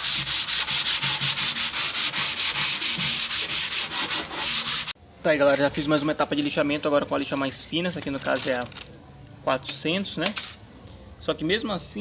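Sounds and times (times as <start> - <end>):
sandpaper rubbing on wood: 0.0 - 5.0.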